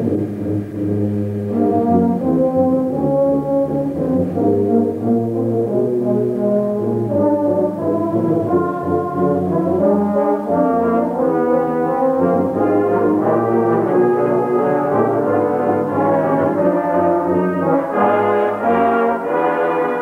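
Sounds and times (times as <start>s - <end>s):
brass band playing chords: 0.0s - 20.0s.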